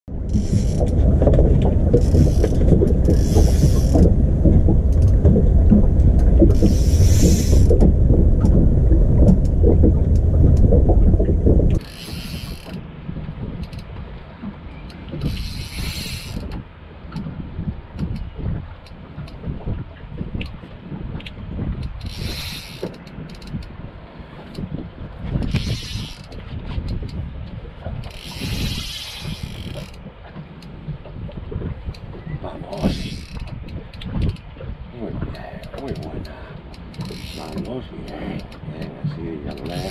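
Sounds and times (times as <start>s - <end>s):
loud low rumble: 0.1s - 11.8s
fishing reel drag buzzing: 2.0s - 4.0s, 6.6s - 7.7s, 11.8s - 12.8s, 15.2s - 16.5s, 22.0s - 23.5s, 25.5s - 26.4s, 28.1s - 30.0s, 32.8s - 33.5s, 36.7s - 37.6s.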